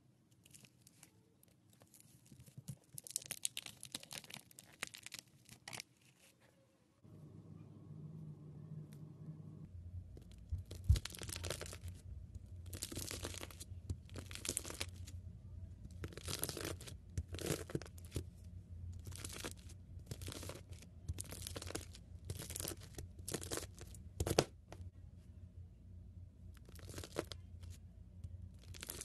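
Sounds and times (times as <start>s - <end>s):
faint low hum: 0.0s - 29.0s
knife crunching through beads: 12.7s - 15.0s, 16.0s - 18.2s, 26.6s - 27.3s, 28.6s - 29.0s.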